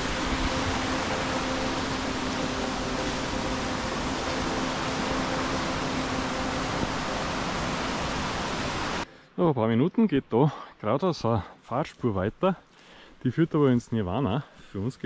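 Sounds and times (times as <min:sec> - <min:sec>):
steady rushing noise: 0:00.0 - 0:09.1.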